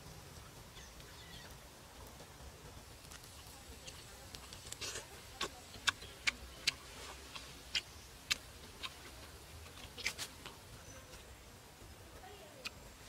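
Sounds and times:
crunching while eating: 3.0s - 10.6s.

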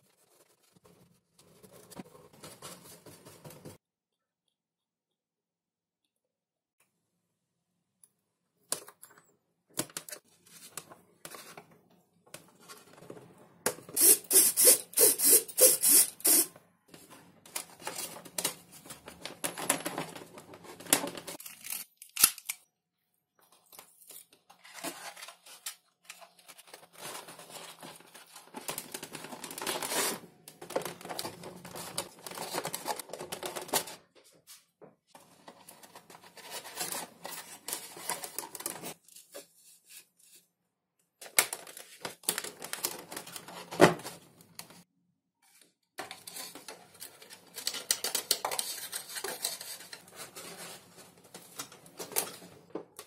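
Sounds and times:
handling foam and plastic parts: 0.0s - 3.8s, 15.9s - 22.7s, 23.3s - 44.8s, 45.4s - 53.0s.

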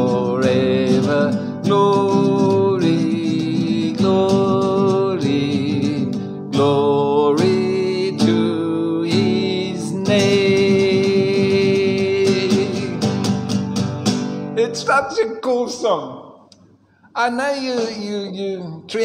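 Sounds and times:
man singing long held notes: 0.0s - 13.1s
strummed acoustic guitar: 0.0s - 15.1s.

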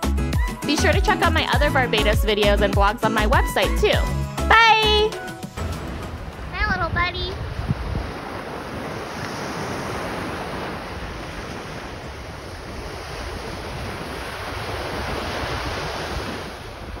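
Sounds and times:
surf washing on sand: 5.4s - 17.0s
wind buffeting microphone: 5.6s - 17.0s.

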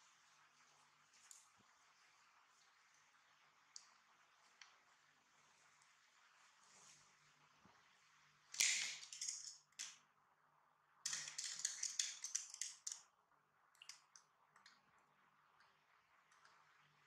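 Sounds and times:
light ticks and clicks: 11.1s - 13.1s, 13.7s - 16.7s.

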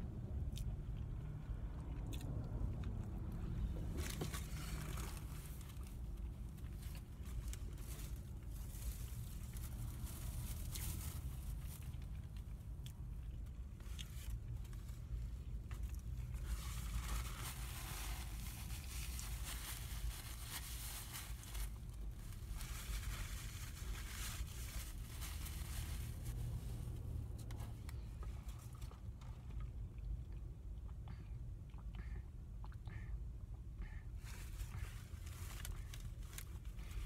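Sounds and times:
low car cabin hum: 0.0s - 37.0s
paper wrapper crinkling: 13.8s - 27.0s, 34.9s - 37.0s.

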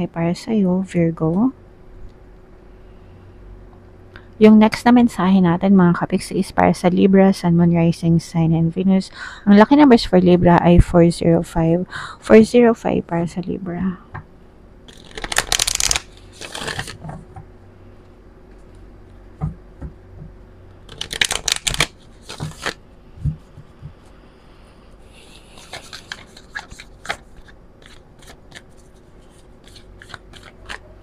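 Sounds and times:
cards riffle shuffling: 14.9s - 17.2s, 20.9s - 22.8s, 25.2s - 31.0s
cards tapping and flicking: 20.9s - 23.7s, 25.6s - 28.8s, 29.6s - 30.9s.

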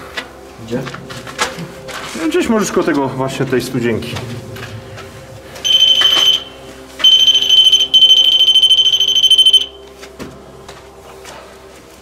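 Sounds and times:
pulsing electronic alarm beep: 5.6s - 9.8s.

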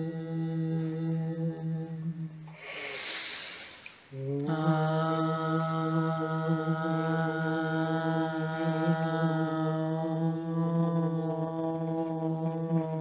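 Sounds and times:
person chanting low note: 0.0s - 3.0s, 4.1s - 13.0s.

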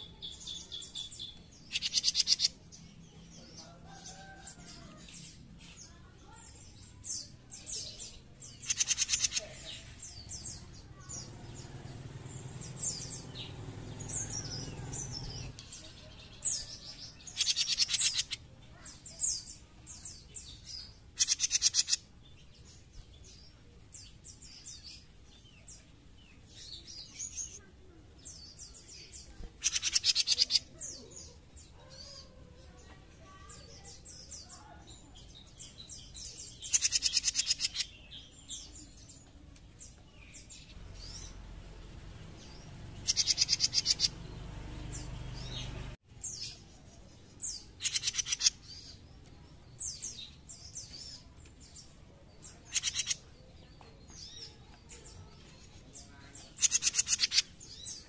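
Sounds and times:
songbird rattling chatter: 1.7s - 2.5s, 8.5s - 18.9s, 21.2s - 22.0s, 29.4s - 30.8s, 36.6s - 37.9s, 42.7s - 44.1s, 47.6s - 48.6s, 52.6s - 53.3s, 56.4s - 57.6s.

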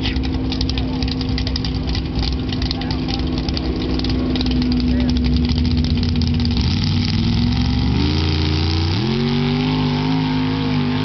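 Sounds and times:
engine revving hard: 4.0s - 11.0s.

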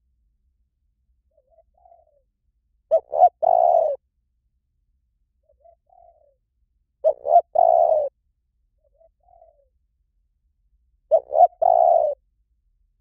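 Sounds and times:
dove cooing: 1.3s - 2.3s, 2.9s - 4.0s, 5.4s - 6.4s, 7.0s - 8.2s, 8.8s - 9.8s, 11.1s - 12.2s.

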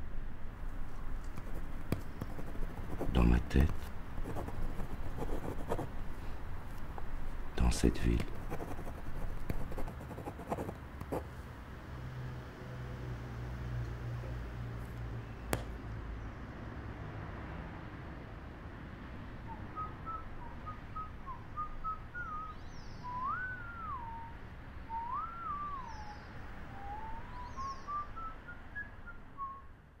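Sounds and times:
person whistling a tune: 22.2s - 24.3s, 24.9s - 26.1s.

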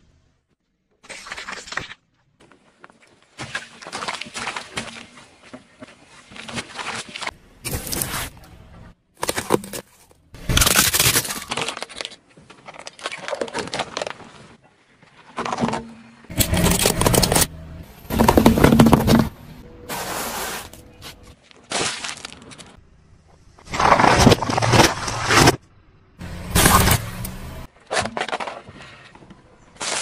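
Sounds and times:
tyre crushing objects: 9.2s - 11.8s, 15.3s - 19.6s, 23.6s - 25.6s, 26.2s - 28.7s.

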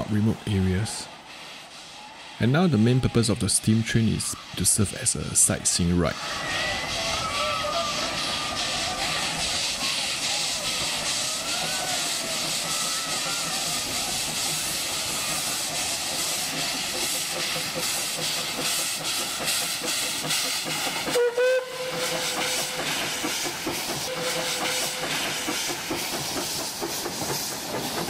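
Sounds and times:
steam locomotive hissing: 0.0s - 28.0s
steam whistle: 21.1s - 22.9s, 24.0s - 25.2s.

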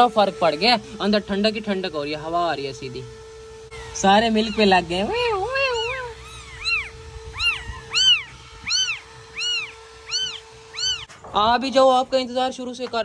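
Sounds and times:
kittens mewing: 5.6s - 11.1s.

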